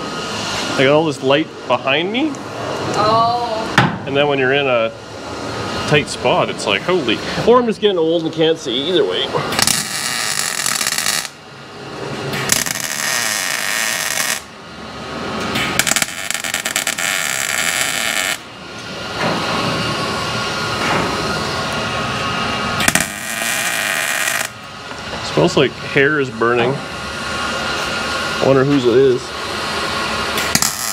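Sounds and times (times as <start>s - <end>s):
welding arc crackle: 9.6s - 11.4s, 12.4s - 14.6s, 15.5s - 18.5s, 22.8s - 24.6s, 30.4s - 30.9s.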